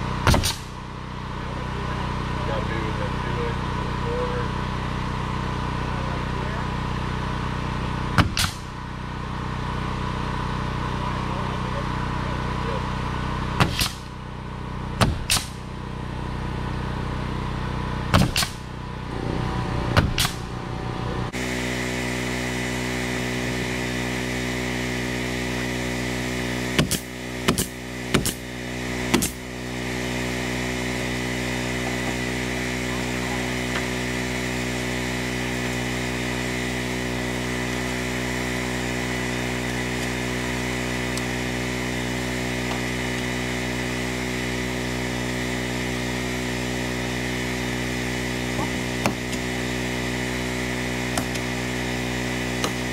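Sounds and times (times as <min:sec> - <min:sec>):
steady machine hum: 0:00.0 - 0:52.9
nail gun shots: 0:00.2 - 0:00.7, 0:08.2 - 0:08.7, 0:13.6 - 0:14.1, 0:15.0 - 0:15.6, 0:18.1 - 0:18.6, 0:20.0 - 0:20.5, 0:26.8 - 0:28.5, 0:29.1 - 0:29.4.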